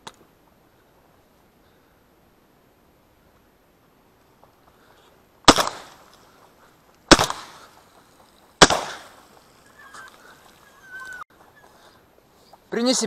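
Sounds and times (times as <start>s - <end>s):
shotgun shots with echo: 5.5s - 6.1s, 7.1s - 7.8s, 8.6s - 9.2s.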